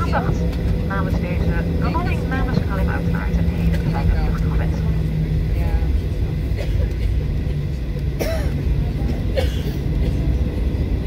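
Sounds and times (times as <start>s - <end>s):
jet engines low rumble: 0.0s - 11.0s.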